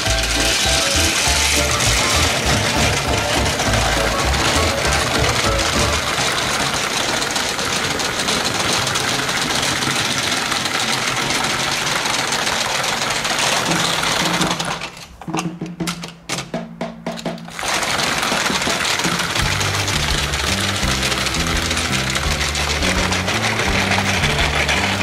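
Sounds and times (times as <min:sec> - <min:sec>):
toy train motor whirring: 0:00.0 - 0:15.1, 0:17.5 - 0:25.0
clicks of handled toy trains: 0:00.0 - 0:16.5, 0:17.1 - 0:25.0
wheels rattling on plastic track: 0:00.0 - 0:16.5, 0:17.2 - 0:25.0.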